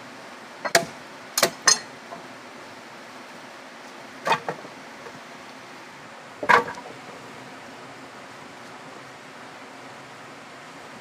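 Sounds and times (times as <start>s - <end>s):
wood striking wood: 0.7s - 2.2s, 4.2s - 4.7s, 6.4s - 7.2s.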